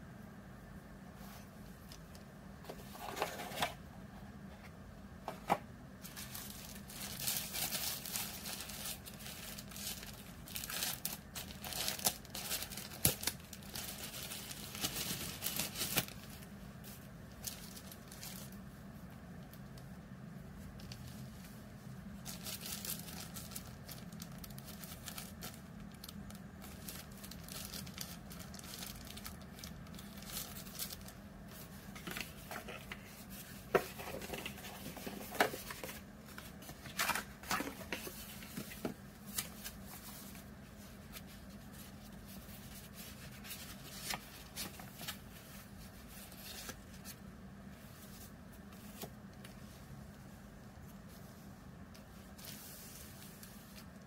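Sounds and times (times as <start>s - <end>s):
plastic bag crinkling: 6.0s - 16.5s, 22.1s - 45.3s.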